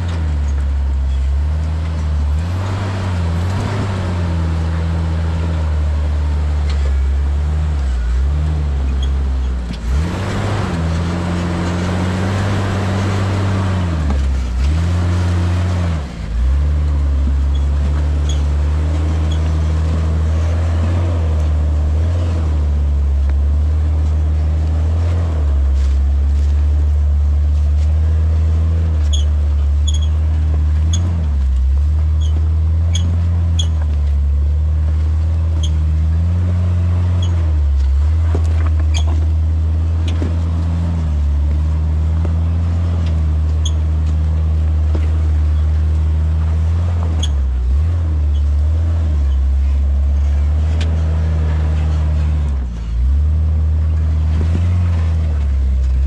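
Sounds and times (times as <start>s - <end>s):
short high squeaks: 0.0s - 1.8s, 6.6s - 15.8s, 17.4s - 22.5s, 29.0s - 31.4s, 32.1s - 34.2s, 35.4s - 39.4s, 42.6s - 44.3s, 46.6s - 53.1s
car engine running at low revs: 0.0s - 56.0s.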